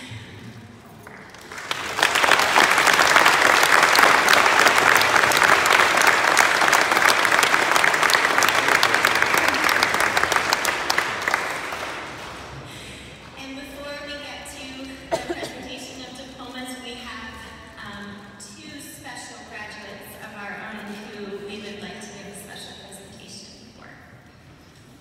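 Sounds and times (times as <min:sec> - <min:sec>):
audience applauding: 0:01.0 - 0:12.7.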